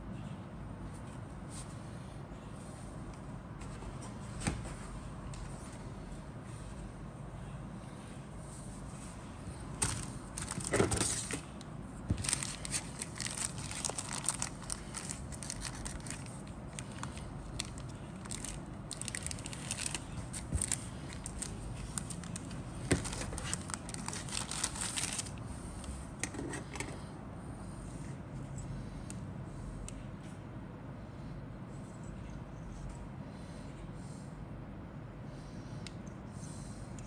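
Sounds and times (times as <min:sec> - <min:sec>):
plastic bag crinkling and tearing: 0:09.8 - 0:11.3, 0:12.2 - 0:25.4.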